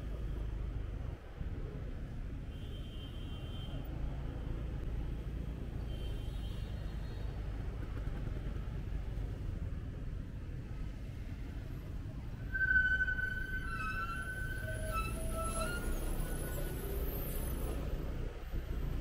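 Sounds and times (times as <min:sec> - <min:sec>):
city traffic rumble: 0:00.0 - 0:19.0
steady high tone: 0:12.3 - 0:17.0.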